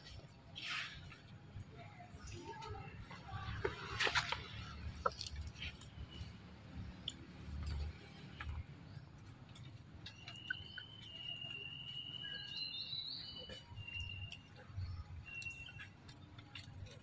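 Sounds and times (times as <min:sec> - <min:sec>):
thin high whistling call: 0:10.2 - 0:14.5.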